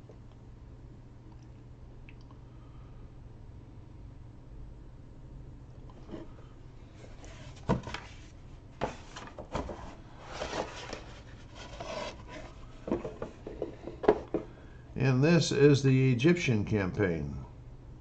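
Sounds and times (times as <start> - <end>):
cardstock sheets sliding and rubbing: 7.2 - 12.7.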